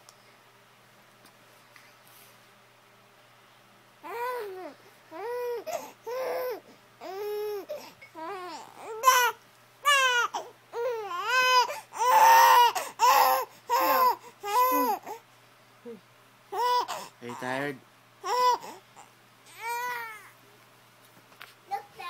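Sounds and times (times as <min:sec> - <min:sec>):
baby making cry-like sounds: 0:04.0 - 0:15.2, 0:16.5 - 0:17.5, 0:18.2 - 0:20.4.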